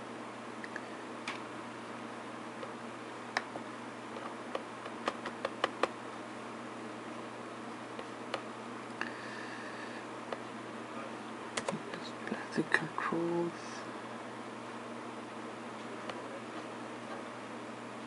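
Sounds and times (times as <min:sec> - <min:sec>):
keyboard and mouse clicks: 0:04.2 - 0:06.0, 0:11.6 - 0:11.8.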